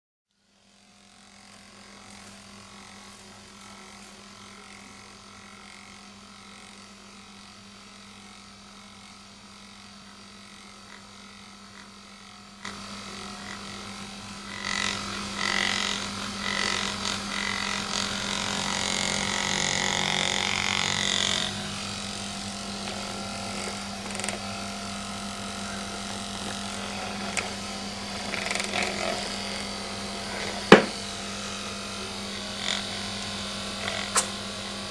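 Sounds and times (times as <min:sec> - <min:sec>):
massager motor humming: 0:00.4 - 0:34.9
scratchy rubbing on fur: 0:22.4 - 0:24.5, 0:25.7 - 0:31.0.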